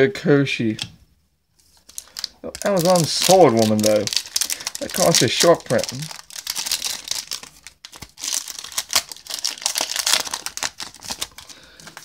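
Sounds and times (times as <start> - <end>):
foil wrapper crinkling and tearing: 1.7 - 12.0.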